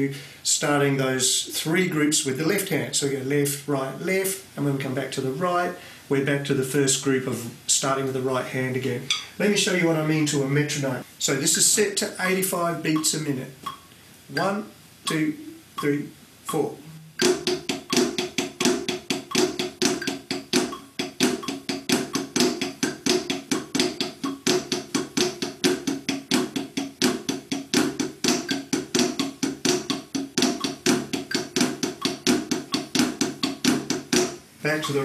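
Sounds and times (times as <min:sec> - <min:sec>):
drumsticks on practice pad: 0:15.1 - 0:35.0.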